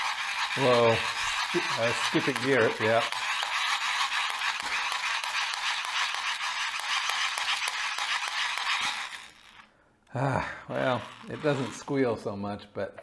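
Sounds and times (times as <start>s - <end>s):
gears skipping clicks: 0.0s - 9.6s
plastic gears grinding whirr: 0.0s - 9.7s, 10.7s - 12.2s.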